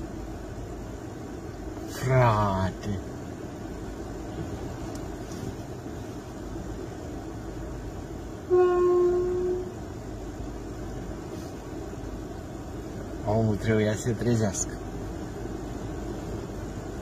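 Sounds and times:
horn blast: 8.5s - 9.7s.

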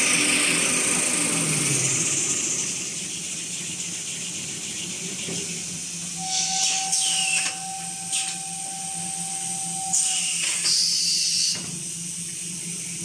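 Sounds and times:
steady high whine: 0.0s - 13.0s
hiss sweeping down in pitch: 6.2s - 11.6s.

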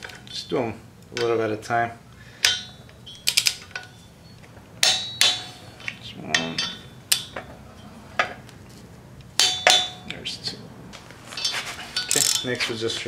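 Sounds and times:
torque wrench clicking: 2.4s - 3.9s, 12.0s - 12.6s.

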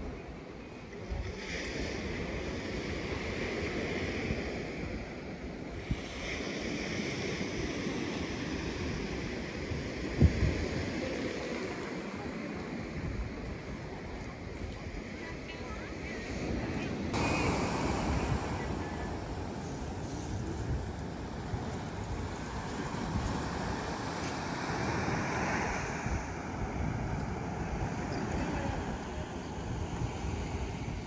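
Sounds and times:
sea surf breaking on beach: 0.0s - 31.0s
wind buffeting microphone: 0.0s - 31.0s.

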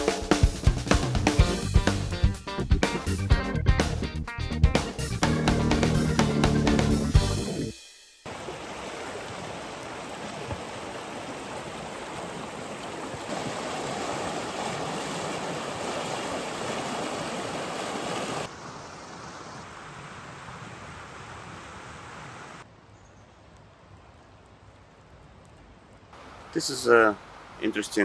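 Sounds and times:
music: 0.0s - 8.3s
creek water flowing: 8.3s - 22.7s, 23.4s - 28.0s.

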